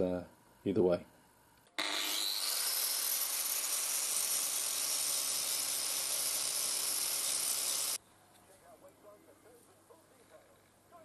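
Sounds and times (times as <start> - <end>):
angle grinder grinding metal: 1.8 - 8.0.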